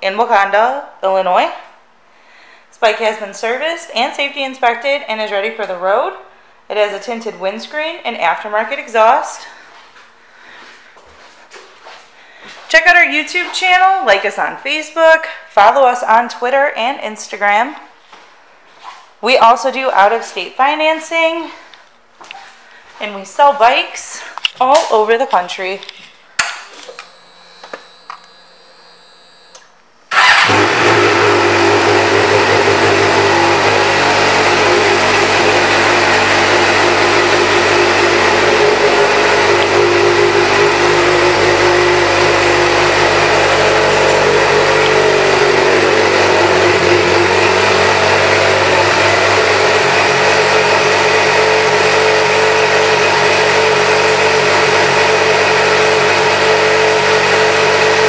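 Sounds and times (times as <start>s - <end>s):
motorcycle engine starting and idling: 30.1s - 58.0s.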